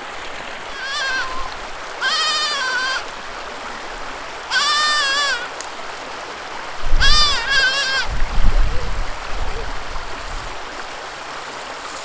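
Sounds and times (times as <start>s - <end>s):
creek water rushing: 0.0s - 12.0s
goat kids bleating: 0.7s - 3.1s, 4.5s - 5.6s, 7.0s - 8.1s.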